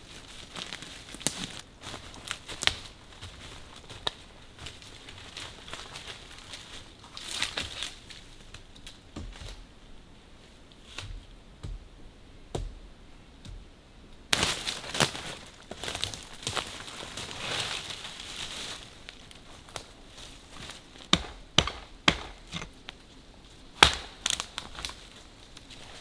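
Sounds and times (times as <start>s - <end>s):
dry leaves rustling and crunching: 0.0s - 9.6s, 14.3s - 21.2s, 24.1s - 26.0s
twigs cracking: 0.2s - 9.6s, 14.3s - 20.0s, 23.8s - 25.8s
pole dragged through leaves: 14.4s - 20.9s.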